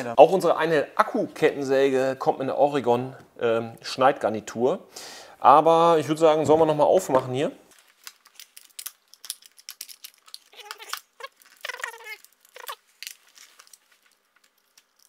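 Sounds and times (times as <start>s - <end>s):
plastic and metal parts clicking: 8.1s - 15.0s.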